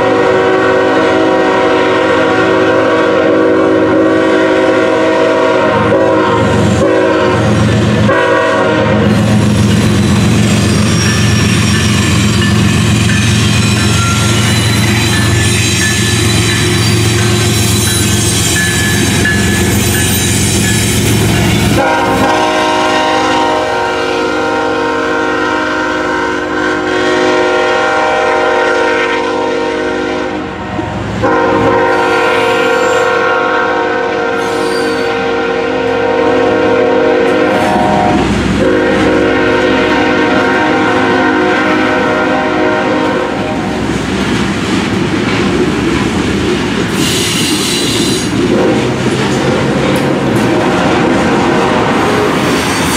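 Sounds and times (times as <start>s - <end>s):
train air horn blasts: 0.0s - 9.6s, 13.5s - 43.8s, 46.9s - 49.0s
diesel locomotive rumbling: 0.0s - 52.9s
wheels clattering on rails: 43.8s - 52.9s.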